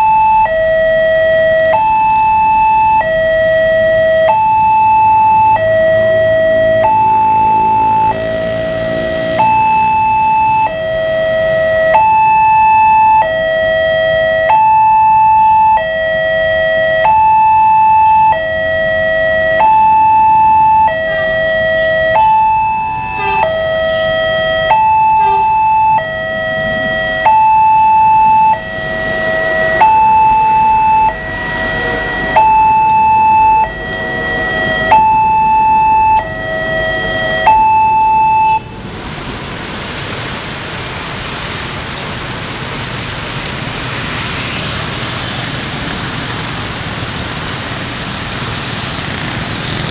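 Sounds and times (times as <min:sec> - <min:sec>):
level crossing two-tone alarm: 0:00.0 - 0:38.8
approaching train: 0:05.4 - 0:12.0, 0:20.4 - 0:27.6, 0:28.2 - 0:37.6, 0:38.2 - 0:49.9.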